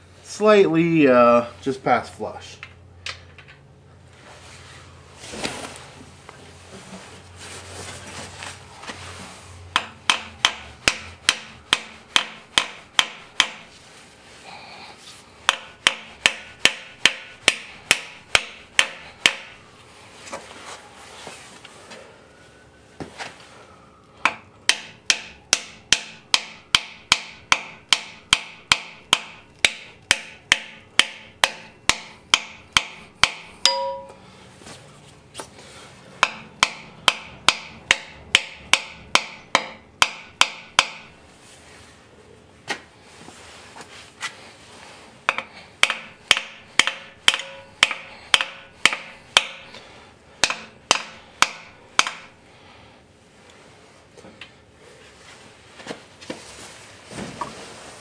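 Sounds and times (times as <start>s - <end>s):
hammer blows on metal: 24.2s - 34.2s, 45.3s - 49.8s.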